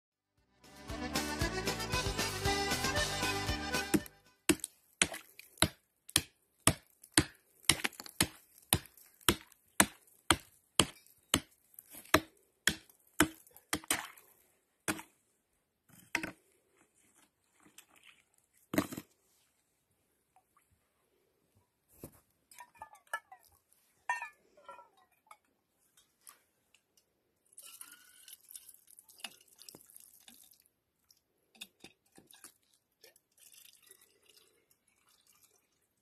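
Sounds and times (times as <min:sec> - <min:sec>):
hatchet chopping into ice: 0:03.9 - 0:14.1.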